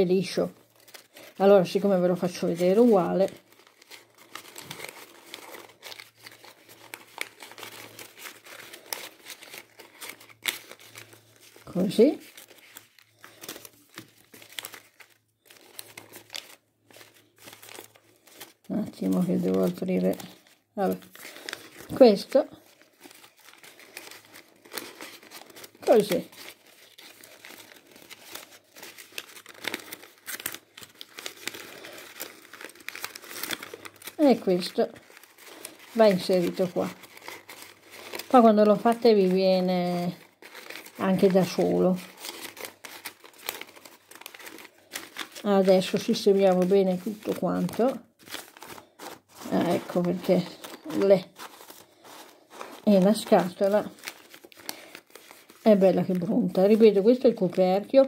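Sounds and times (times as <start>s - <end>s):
paper crinkling and rustling: 0.0s - 58.0s.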